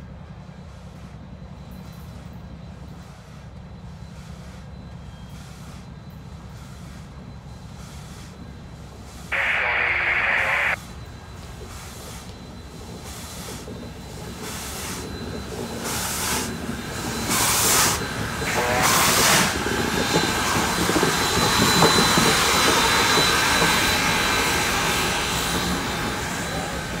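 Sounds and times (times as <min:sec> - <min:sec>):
steam locomotive chuffing: 0:00.0 - 0:09.4, 0:10.8 - 0:27.0
train hiss and rumble: 0:00.0 - 0:27.0
thin high whine: 0:09.3 - 0:11.0.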